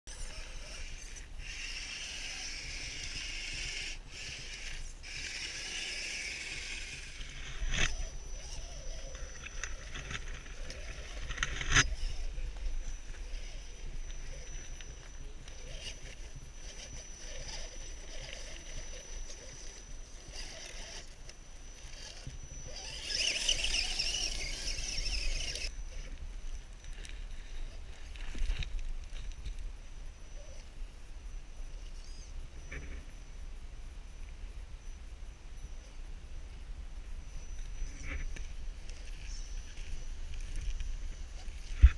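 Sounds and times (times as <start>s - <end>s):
rc car motor whining: 0.1s - 28.7s, 31.7s - 33.2s, 37.3s - 41.9s
wheels scrabbling over rocks: 0.1s - 29.7s.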